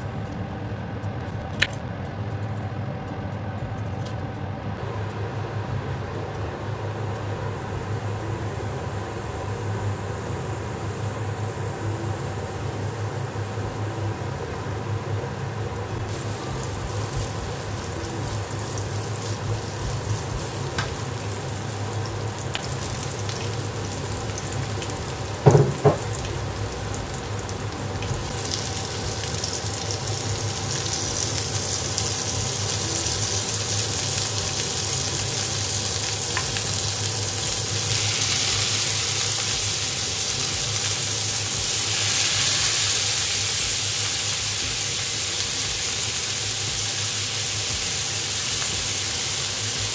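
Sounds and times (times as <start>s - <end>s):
onions sizzling in oil: 6.7s - 49.9s
meat sizzling in a pan: 16.0s - 49.9s
loud knocks: 25.4s - 26.1s.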